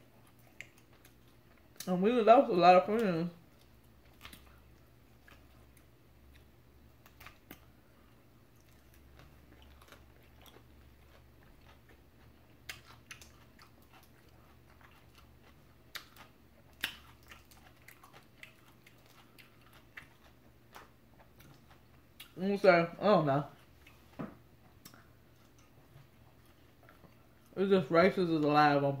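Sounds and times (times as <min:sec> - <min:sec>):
mouth-close chewing: 0:03.5 - 0:22.4.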